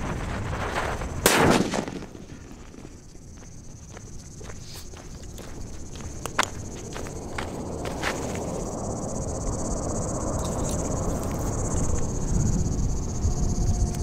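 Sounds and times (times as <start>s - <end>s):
crickets chirping: 0.0s - 14.0s
low rumble on microphone: 5.6s - 14.0s.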